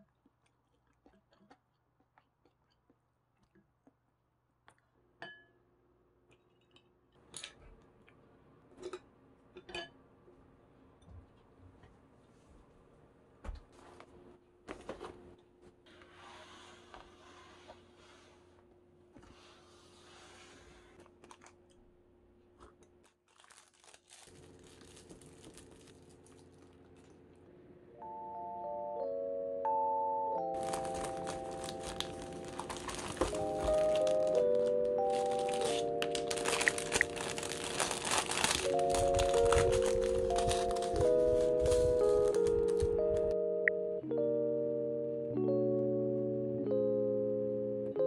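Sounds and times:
plastic wrapper crinkling: 0:22.8 - 0:27.2, 0:30.5 - 0:43.4.

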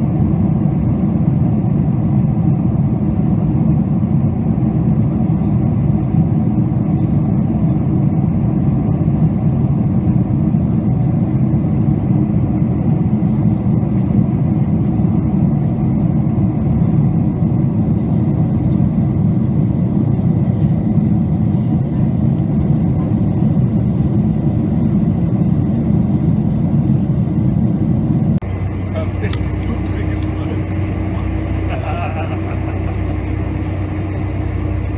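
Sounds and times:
jet engine cabin rumble: 0:00.0 - 0:34.9.

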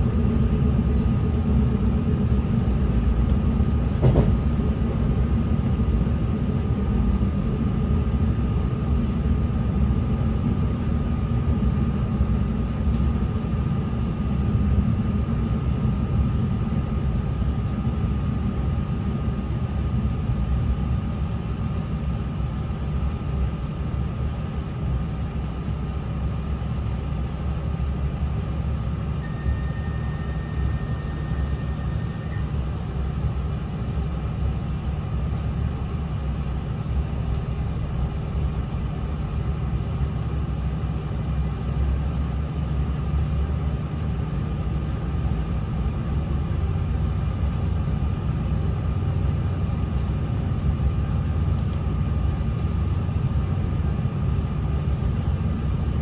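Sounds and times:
diesel train rumble: 0:00.0 - 0:56.0
faint steady whine: 0:27.9 - 0:56.0.

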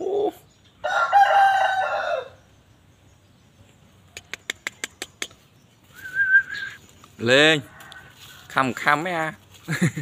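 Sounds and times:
rooster crowing: 0:00.8 - 0:02.4, 0:07.5 - 0:08.7
sharp clicks: 0:04.1 - 0:05.4.

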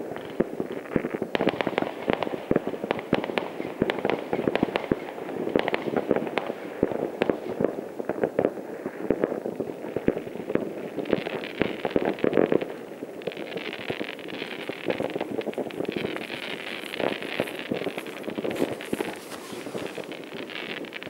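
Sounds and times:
distant fireworks bangs and pops: 0:00.0 - 0:21.0
fireworks crackling: 0:00.0 - 0:21.0.

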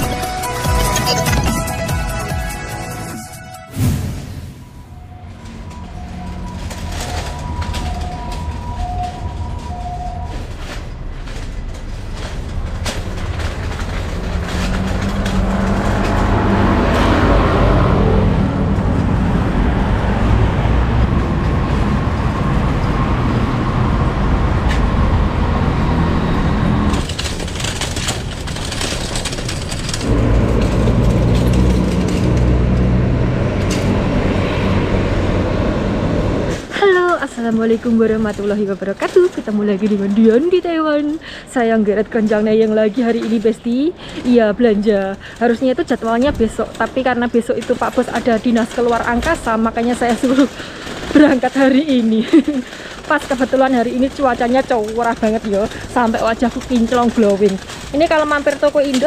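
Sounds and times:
two-tone alternating beep: 0:00.7 - 0:01.8
low rumble of traffic: 0:04.5 - 0:59.0.

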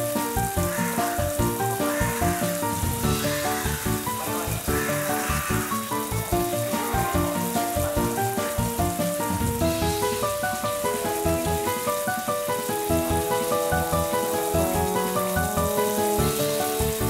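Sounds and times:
bright melody over steady beat: 0:05.6 - 0:17.0.

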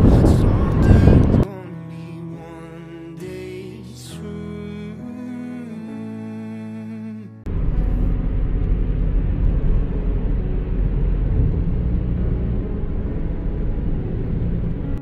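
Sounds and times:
loud low rumbling: 0:00.0 - 0:01.5, 0:07.5 - 0:15.0.

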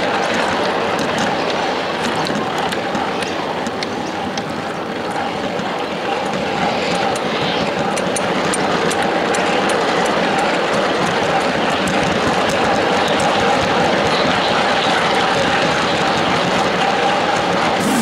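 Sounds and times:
train wheels rumbling on rails: 0:17.0 - 0:18.0.

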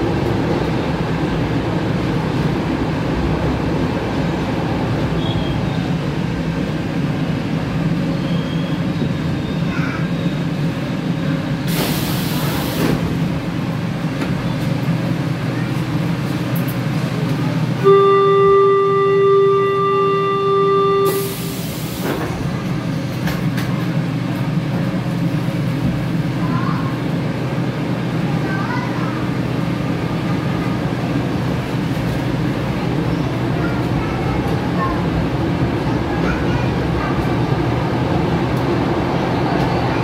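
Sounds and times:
train humming: 0:00.0 - 0:40.0
air hiss: 0:11.7 - 0:13.0.

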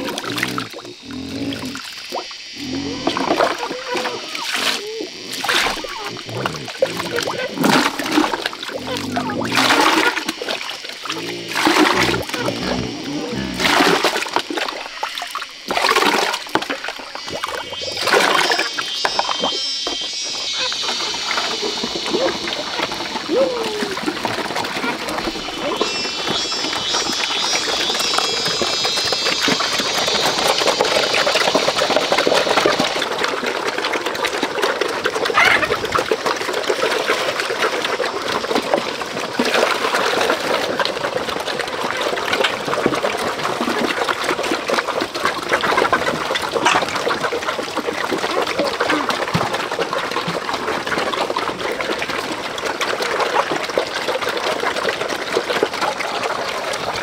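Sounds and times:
pigs slurping and chomping: 0:00.0 - 0:57.0
brief high animal call: 0:17.4 - 0:32.0.

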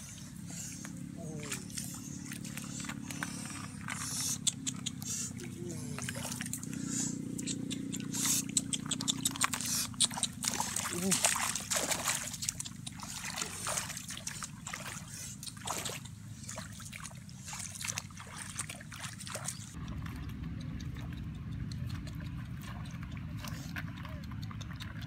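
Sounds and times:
water splashing and sloshing: 0:00.0 - 0:25.0
steady low rumble: 0:19.7 - 0:25.0.

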